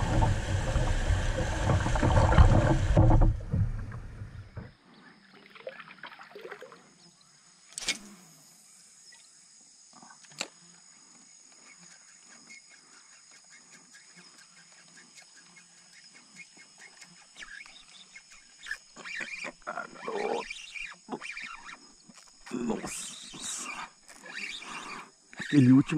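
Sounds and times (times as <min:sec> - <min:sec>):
wind on microphone: 0:00.0 - 0:04.7
kayak paddling: 0:00.0 - 0:04.8.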